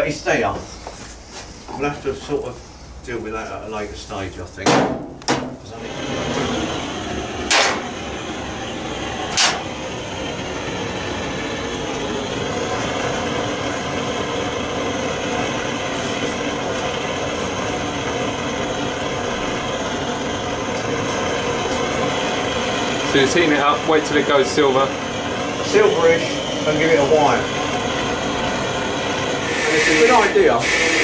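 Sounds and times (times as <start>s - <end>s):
blowtorch flame hissing: 5.2s - 31.0s.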